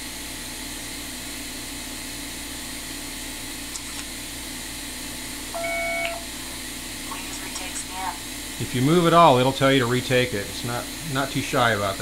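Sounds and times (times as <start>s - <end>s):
scanner fan hiss and hum: 0.0s - 12.0s
short electronic beep: 5.6s - 6.2s.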